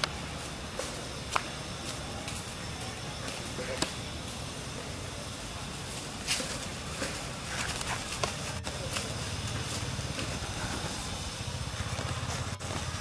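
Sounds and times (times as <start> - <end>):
dry leaves crackling: 0.0 - 13.0
outdoor hiss: 0.0 - 13.0.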